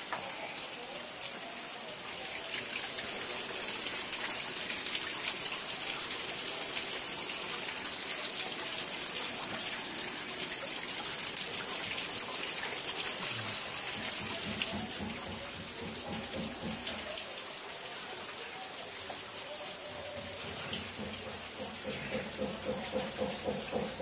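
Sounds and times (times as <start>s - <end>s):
rainwater rushing: 0.0s - 24.0s.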